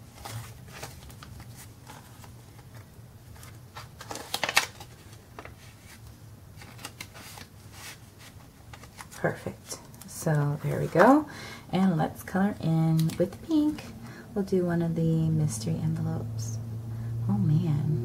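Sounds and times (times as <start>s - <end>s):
paper banknotes rustling: 0.0s - 11.2s
paper envelope crinkle: 0.0s - 11.2s.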